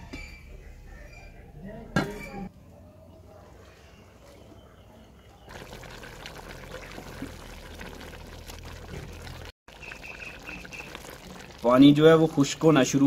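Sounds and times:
rice and lentils boiling: 5.4 - 13.0.

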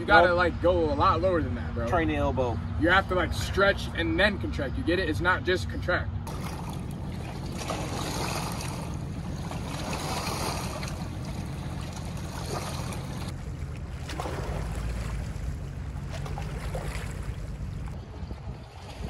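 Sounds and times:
waves lapping against rocks: 6.3 - 19.0
wind buffeting microphone: 6.3 - 19.0.

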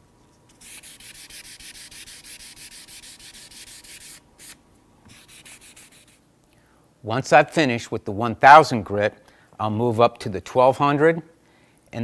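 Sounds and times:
hand sanding strokes: 0.6 - 6.2.

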